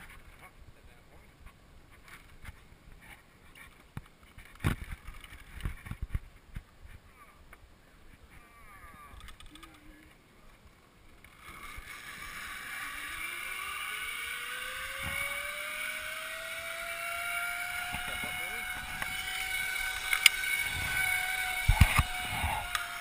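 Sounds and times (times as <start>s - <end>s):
zip line trolley on cable: 11.1s - 23.0s.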